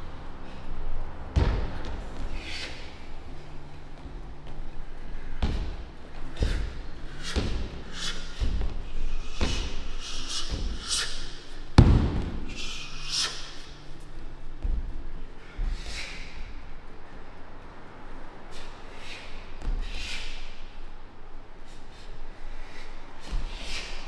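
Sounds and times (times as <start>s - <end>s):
thuds of strikes on pads: 11.8s - 12.5s.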